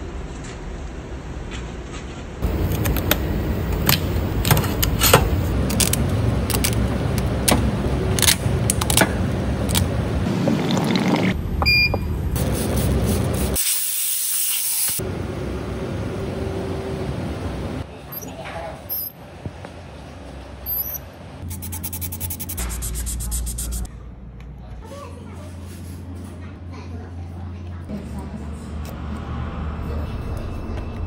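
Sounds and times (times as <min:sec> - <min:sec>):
steady low rumble: 0:02.4 - 0:10.4.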